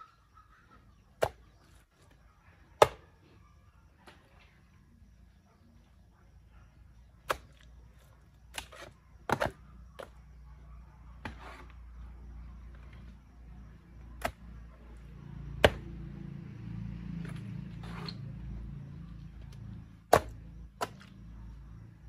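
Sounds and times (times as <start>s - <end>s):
hoe striking soil: 8.5s - 10.1s, 11.2s - 11.8s, 15.6s - 15.9s, 17.2s - 18.3s, 20.0s - 21.1s.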